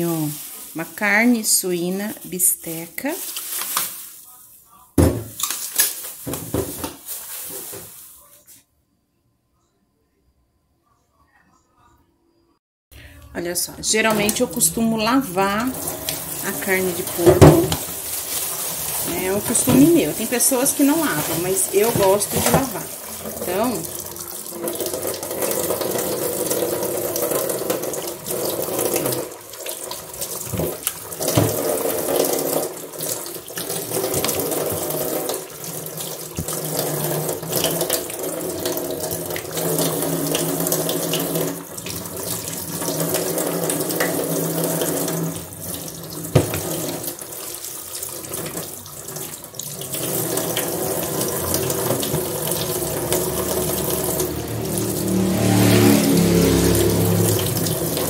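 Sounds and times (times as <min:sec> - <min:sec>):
tap water splashing into sink: 0:14.0 - 0:58.0.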